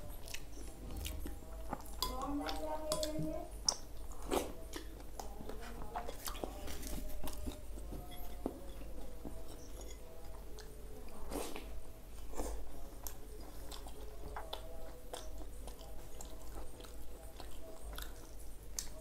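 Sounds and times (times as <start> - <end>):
man chewing and smacking: 0.0 - 2.1, 6.0 - 19.0.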